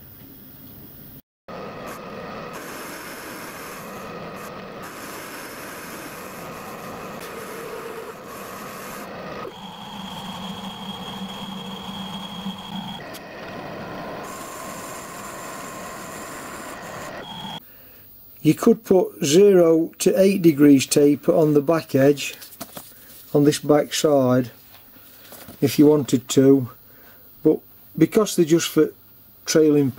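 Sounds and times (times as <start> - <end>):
high whine and low hum: 0.0 - 29.9
metal lathe running: 1.5 - 17.6.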